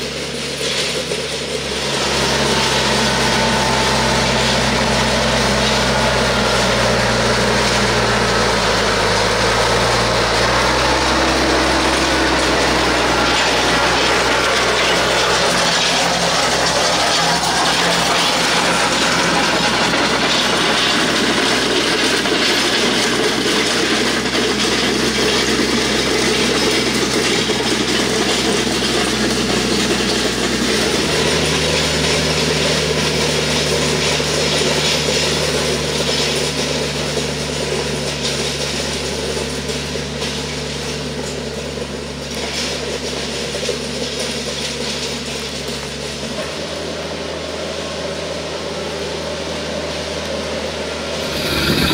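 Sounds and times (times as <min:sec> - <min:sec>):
land plane scraping over gravel: 0:00.0 - 0:39.6, 0:51.1 - 0:51.9
tractor engine running: 0:00.0 - 0:51.9.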